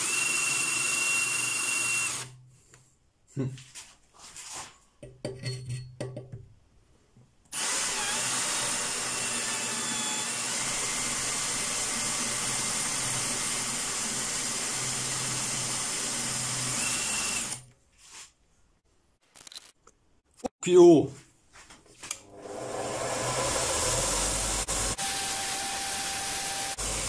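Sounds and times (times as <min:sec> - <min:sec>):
cordless drill running: 0:00.0 - 0:02.4, 0:07.6 - 0:17.6, 0:22.3 - 0:27.0.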